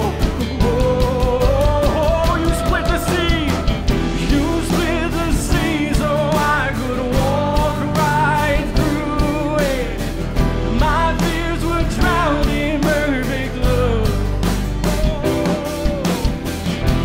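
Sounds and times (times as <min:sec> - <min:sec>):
bass: 0:00.0 - 0:17.0
drums: 0:00.0 - 0:17.0
person singing: 0:00.0 - 0:17.0
worship band playing: 0:00.0 - 0:17.0.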